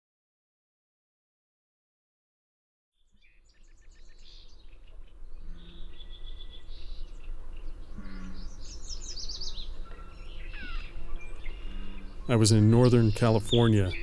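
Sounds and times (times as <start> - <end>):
bird singing chirps: 3.0 - 14.0.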